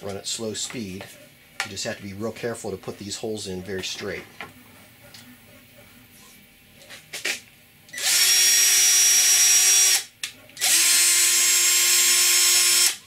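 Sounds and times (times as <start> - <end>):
cordless drill running slowly: 8.0 - 10.0, 10.6 - 13.0.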